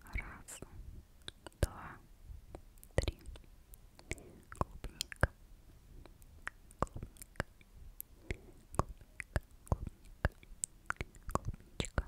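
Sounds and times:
tongue clicks: 0:01.2 - 0:01.8, 0:02.5 - 0:05.4, 0:06.0 - 0:12.0
wet lip smacks: 0:04.0 - 0:05.4, 0:06.1 - 0:12.0.

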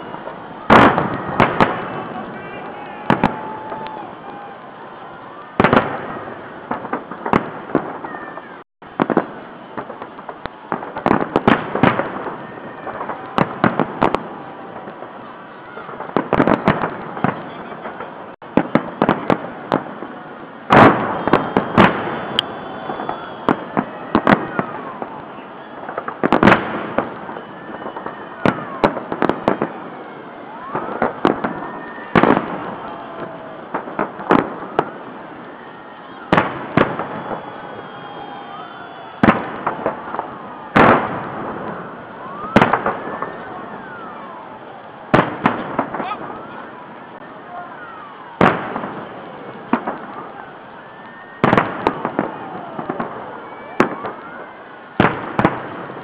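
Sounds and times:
fireworks bangs and crackles: 0:00.0 - 0:56.0.

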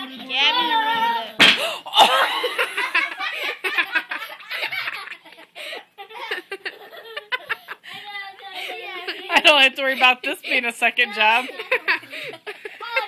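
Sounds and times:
people laughing: 0:01.9 - 0:10.6, 0:11.3 - 0:13.0.

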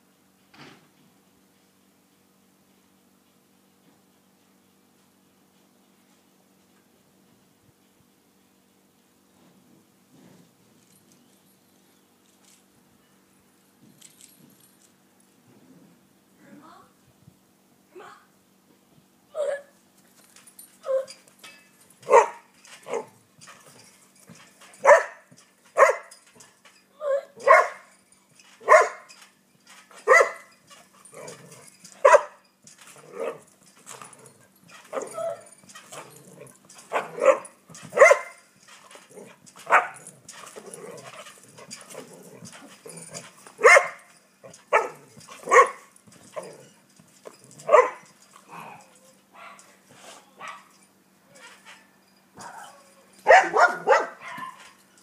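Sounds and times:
dog barking: 0:22.1 - 0:23.1, 0:24.8 - 0:25.2, 0:25.8 - 0:26.1, 0:27.4 - 0:27.8, 0:28.6 - 0:29.0, 0:30.0 - 0:30.5, 0:32.0 - 0:32.4, 0:36.9 - 0:38.4, 0:39.7 - 0:40.0, 0:43.6 - 0:44.0, 0:44.7 - 0:45.9, 0:47.6 - 0:48.0, 0:49.4 - 0:49.7, 0:50.4 - 0:50.7, 0:52.4 - 0:54.6.

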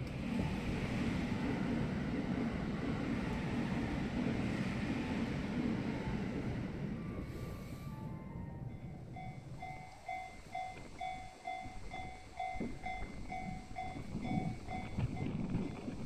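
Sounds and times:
low uneven rumble: 0:00.0 - 0:16.0
level-crossing electronic bell: 0:07.0 - 0:15.4.

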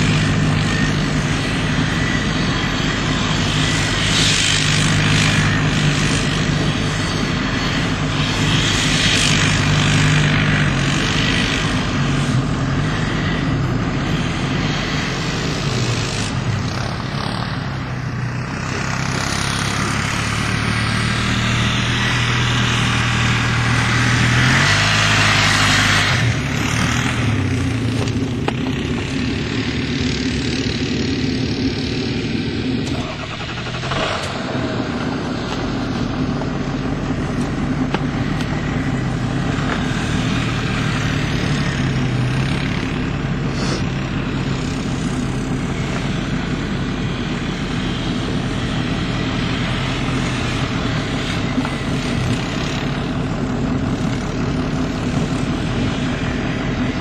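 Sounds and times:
quad bike engine under load: 0:00.0 - 0:57.0.

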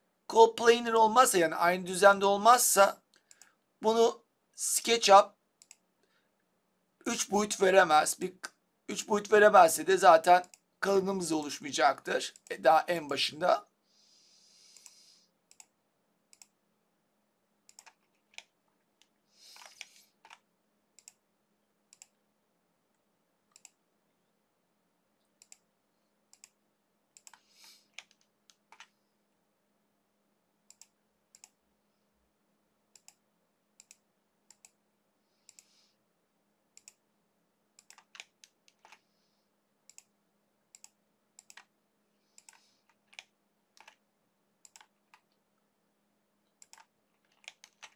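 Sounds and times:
computer mouse clicking: 0:03.1 - 0:03.6, 0:05.6 - 0:05.8, 0:10.4 - 0:10.7, 0:14.7 - 0:15.7, 0:16.3 - 0:16.6, 0:17.7 - 0:20.4, 0:21.0 - 0:21.2, 0:21.9 - 0:22.2, 0:23.5 - 0:23.8, 0:25.3 - 0:25.7, 0:26.3 - 0:28.9, 0:30.7 - 0:31.6, 0:32.9 - 0:33.2, 0:33.8 - 0:34.8, 0:35.4 - 0:35.8, 0:36.8 - 0:37.0, 0:37.8 - 0:39.0, 0:39.9 - 0:40.1, 0:40.7 - 0:41.7, 0:42.3 - 0:44.0, 0:44.6 - 0:45.4, 0:46.5 - 0:47.9
short soft hisses: 0:19.4 - 0:20.2.

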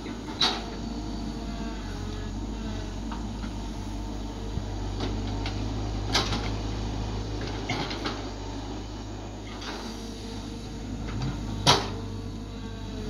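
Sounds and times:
excavator diesel engine running: 0:00.0 - 0:13.0
excavator bucket knocks and clanks: 0:05.0 - 0:06.6, 0:07.4 - 0:08.2, 0:11.0 - 0:12.2.

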